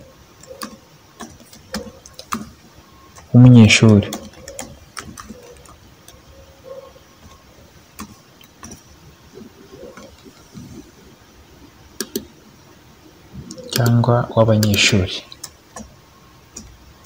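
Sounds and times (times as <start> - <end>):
keyboard keys clicking: 0.4 - 9.0, 12.0 - 12.3, 13.4 - 16.8.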